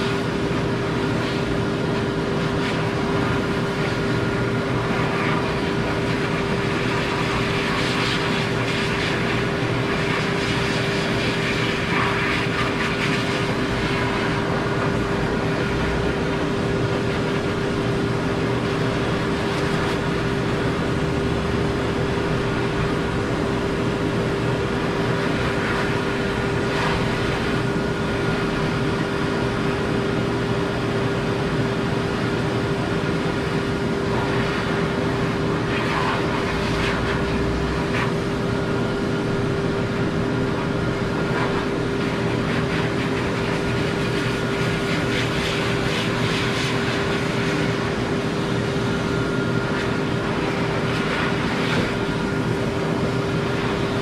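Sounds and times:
dryer hum: 0.0s - 54.0s
pet dryer blowing air: 0.0s - 54.0s.

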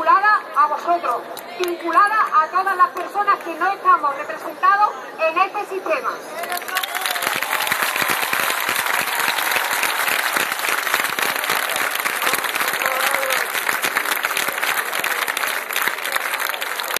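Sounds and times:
crowd applauding: 6.4s - 16.9s.

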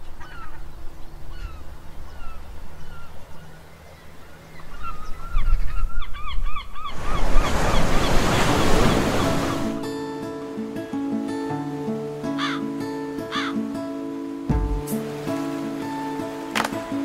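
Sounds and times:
seabirds calling: 0.0s - 17.0s
waves splashing against rocks: 7.0s - 9.9s, 12.1s - 17.0s.

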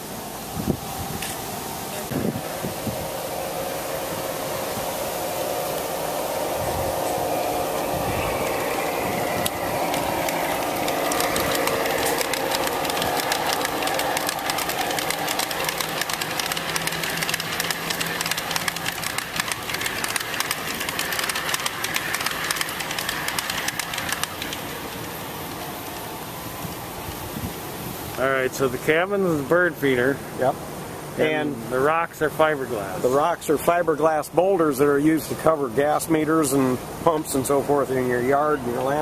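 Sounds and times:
hum: 0.0s - 32.0s
model train wheels clattering: 5.5s - 27.4s.

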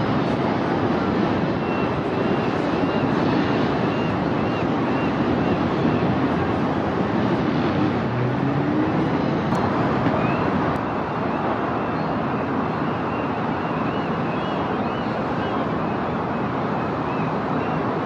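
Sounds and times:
city traffic noise: 0.0s - 18.0s.

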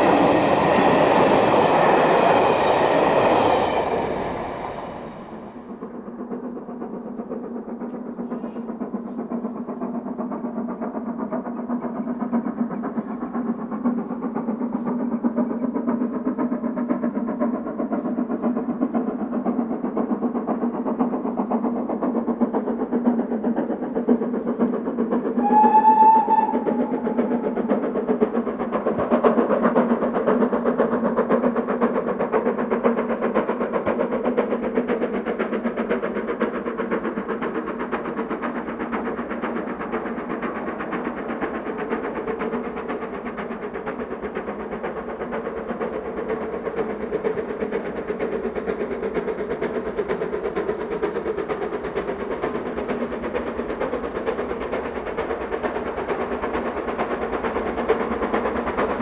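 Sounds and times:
steam locomotive running: 0.0s - 59.0s
steam whistle blast: 25.4s - 27.5s.

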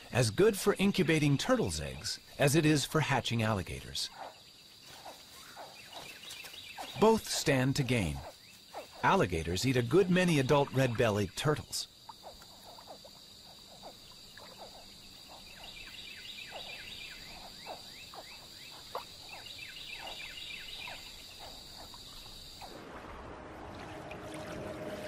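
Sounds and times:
insect trill: 0.0s - 23.0s
frog calls: 1.4s - 22.8s
rushing water: 21.9s - 25.0s.

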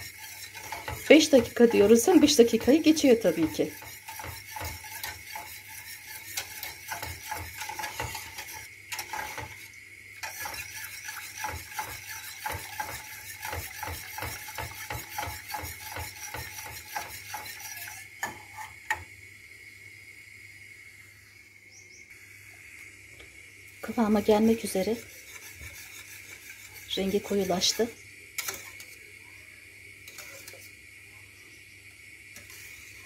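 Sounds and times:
whisk clicking against pot: 0.0s - 18.4s.

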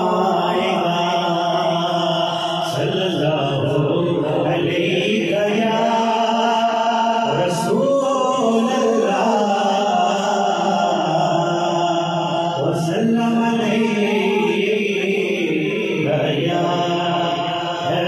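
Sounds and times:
man singing into a microphone: 0.0s - 18.0s.

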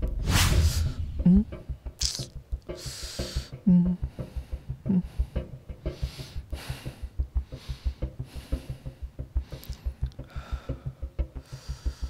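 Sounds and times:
breathy rushes of noise: 0.0s - 1.6s
fast low pulse: 0.0s - 2.6s.

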